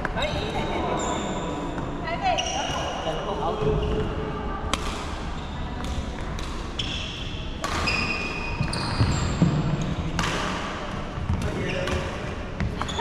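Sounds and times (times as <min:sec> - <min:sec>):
badminton shuttle knocks: 0:07.6 - 0:12.9
shoes squeaking on wooden floor: 0:07.8 - 0:10.1, 0:12.7 - 0:13.0.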